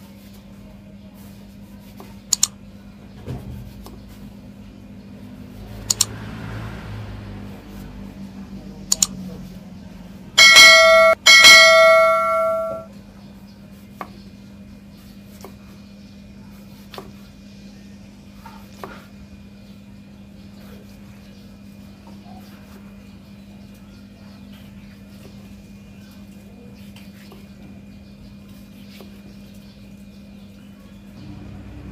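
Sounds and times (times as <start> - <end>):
notification bell chime: 10.4 - 12.9.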